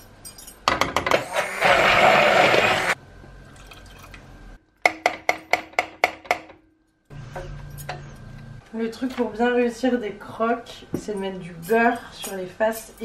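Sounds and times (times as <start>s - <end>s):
stick blender whirring: 1.1s - 3.0s.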